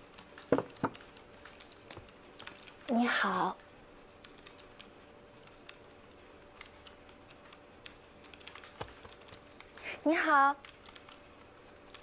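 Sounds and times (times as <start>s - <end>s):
keyboard keys clicking: 0.0s - 2.9s, 4.2s - 9.8s, 10.6s - 12.0s
faint steady hum: 0.0s - 12.0s.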